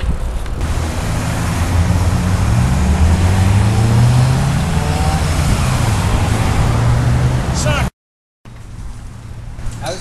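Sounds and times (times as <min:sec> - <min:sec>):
road noise rush: 0:00.0 - 0:07.9, 0:08.5 - 0:10.0
motor vehicle engine running: 0:00.5 - 0:07.6.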